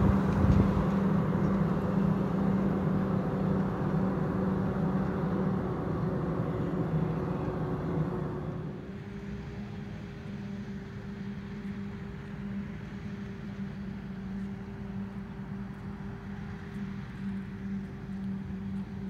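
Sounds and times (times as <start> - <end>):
harvester and tractor engine drone: 0.0 - 19.0.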